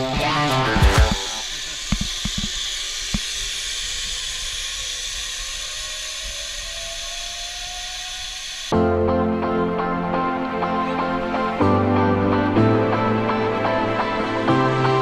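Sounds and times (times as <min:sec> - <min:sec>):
zip-line trolley hissing on cable: 0:00.0 - 0:08.7
faint rising whine: 0:00.5 - 0:15.0.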